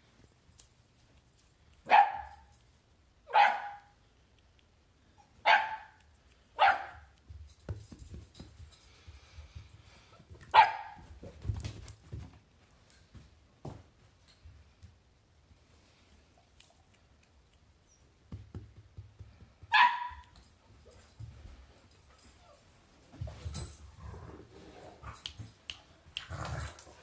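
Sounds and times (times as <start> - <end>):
dog barking: 1.9 - 2.5, 3.3 - 3.9, 5.4 - 6.0, 6.6 - 7.1, 10.5 - 11.0, 19.7 - 20.2.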